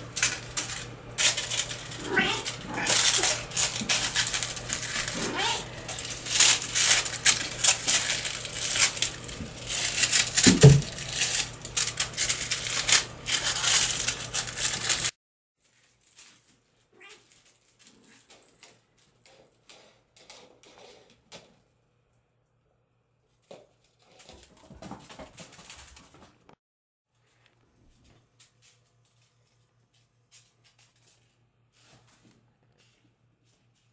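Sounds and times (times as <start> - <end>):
toys and paws clattering: 0.1 - 15.1, 15.7 - 21.6, 23.4 - 26.5
kitten meow: 2.0 - 3.4, 5.1 - 5.9, 17.0 - 17.2.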